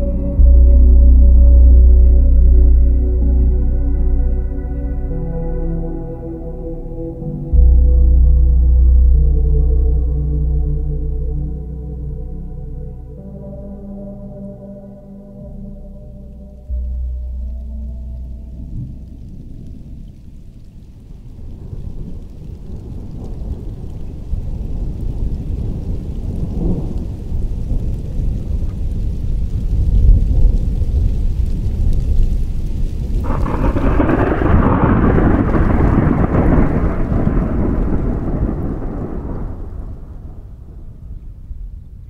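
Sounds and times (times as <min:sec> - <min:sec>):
low rumble of thunder: 0:00.0 - 0:14.1, 0:15.6 - 0:42.0
thunder crash: 0:18.4 - 0:42.0.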